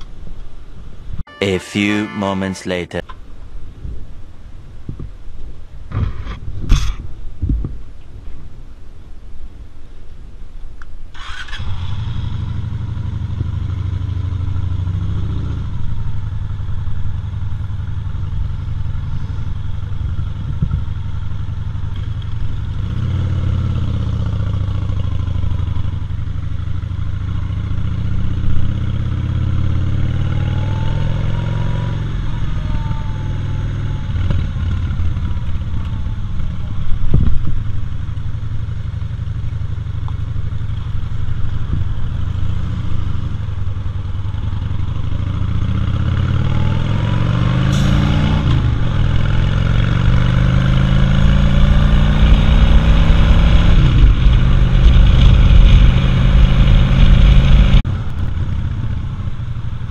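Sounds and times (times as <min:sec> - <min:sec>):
wind noise: 0:03.4 - 0:10.4, 0:19.3 - 0:21.0, 0:34.1 - 0:37.9, 0:51.1 - 0:58.6
motorcycle engine accelerating: 0:11.2 - 0:59.9.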